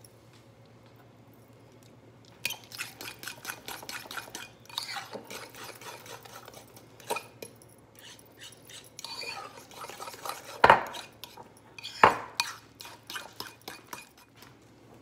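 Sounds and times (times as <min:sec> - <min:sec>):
spoon scraping ceramic bowl: 0:02.5 - 0:07.4, 0:08.0 - 0:14.3.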